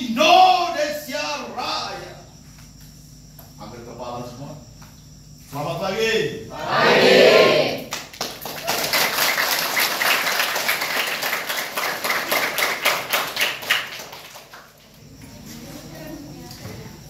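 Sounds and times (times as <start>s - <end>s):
loud shout: 6.5s - 7.9s
crowd clapping: 7.8s - 15.0s.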